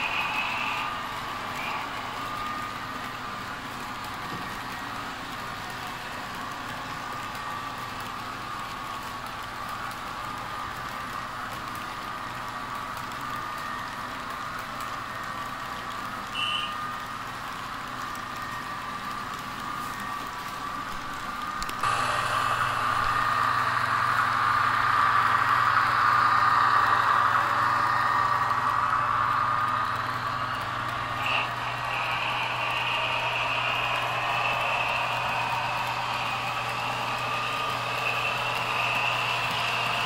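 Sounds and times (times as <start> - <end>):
model train wheels rolling on rails: 0.0 - 40.0
thin motor whine: 21.5 - 40.0.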